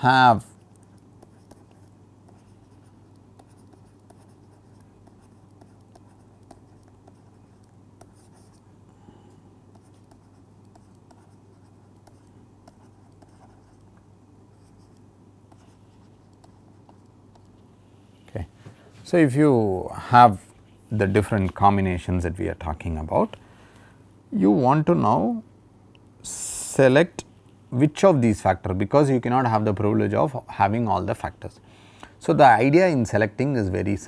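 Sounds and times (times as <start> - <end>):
stylus tapping and scratching screen: 0.5 - 8.7, 9.7 - 17.7.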